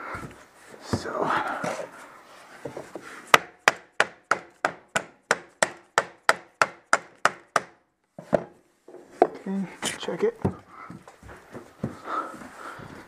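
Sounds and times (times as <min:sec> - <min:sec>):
hammer knocking on wood block: 0:03.3 - 0:08.5.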